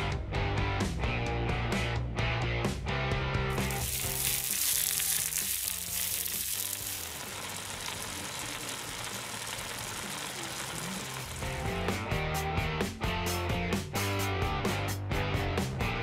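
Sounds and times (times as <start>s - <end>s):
faint background music: 2.2s - 16.0s
food sizzling in a frying pan: 3.5s - 12.0s.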